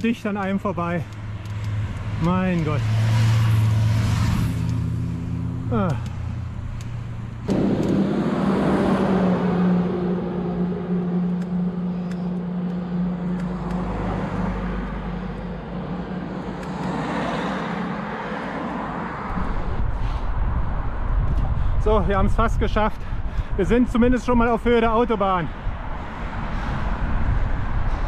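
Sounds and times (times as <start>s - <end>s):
traffic passing: 0.0s - 28.0s
vehicle approaching: 0.0s - 28.0s.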